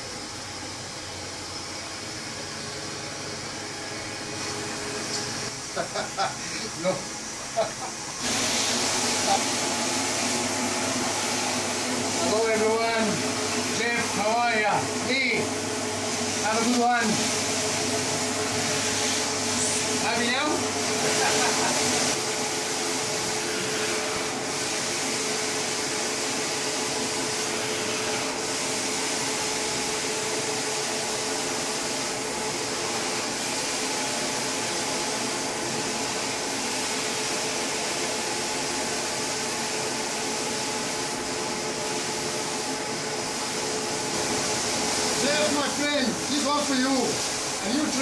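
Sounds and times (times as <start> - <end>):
machine hum: 0.0 - 33.8
carpet cleaner vacuum hissing: 0.0 - 48.0.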